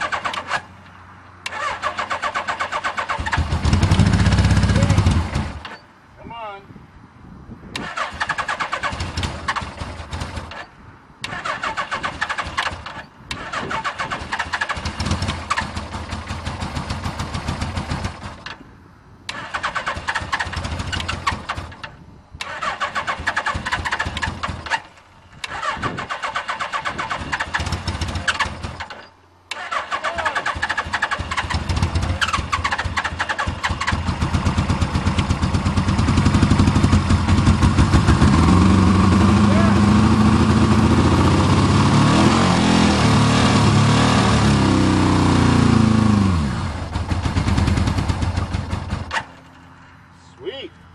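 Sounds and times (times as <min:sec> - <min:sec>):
electric starter cranking engine: 0:01.5 - 0:05.8, 0:11.2 - 0:18.5, 0:22.4 - 0:41.0
engine running roughly: 0:30.5 - 0:49.2.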